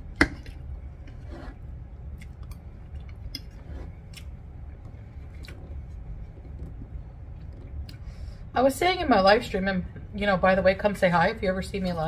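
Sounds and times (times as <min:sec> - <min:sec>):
low steady hum: 0:00.0 - 0:12.0
fork scraping on a plate: 0:01.1 - 0:01.6, 0:03.5 - 0:04.0.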